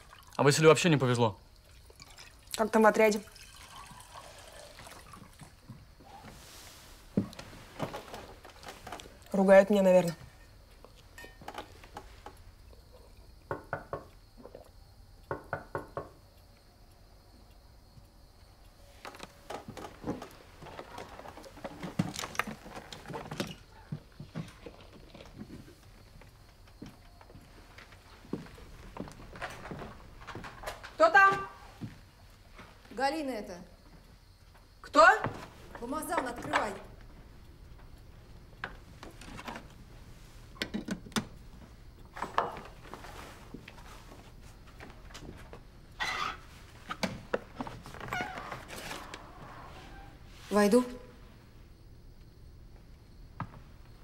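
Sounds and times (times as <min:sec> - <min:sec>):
footsteps on wooden floor: 0:05.6 - 0:09.1, 0:19.0 - 0:32.9, 0:33.8 - 0:37.2.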